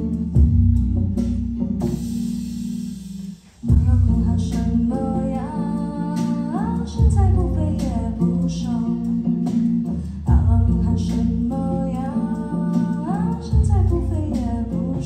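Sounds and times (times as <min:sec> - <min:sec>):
plucked lute and drum kit groove: 0:00.0 - 0:15.0
woman singing: 0:03.6 - 0:15.0.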